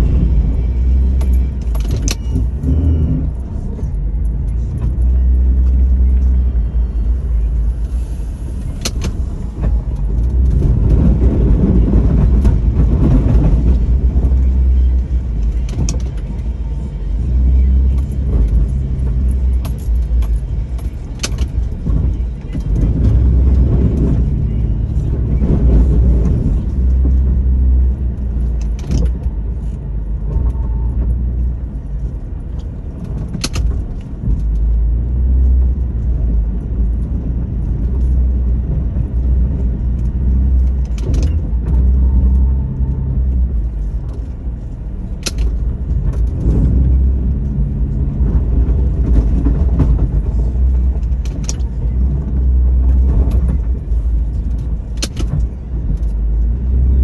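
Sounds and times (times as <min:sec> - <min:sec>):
deep engine drone: 0:00.0 - 0:57.0
sharp clicks and clanks: 0:00.8 - 0:06.3, 0:08.6 - 0:16.6, 0:17.8 - 0:31.2, 0:32.6 - 0:57.0.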